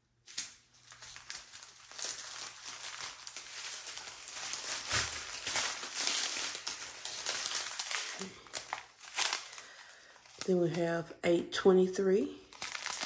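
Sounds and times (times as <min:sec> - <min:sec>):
plastic bags crinkling: 0:00.3 - 0:11.1, 0:12.4 - 0:13.0.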